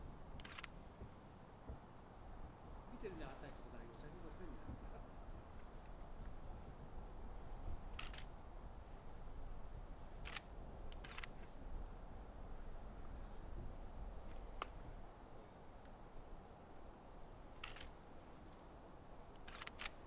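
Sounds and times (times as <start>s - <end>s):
camera shutters clicking: 0.4s - 0.7s, 8.0s - 8.3s, 10.2s - 11.4s, 17.6s - 18.0s, 19.4s - 20.0s.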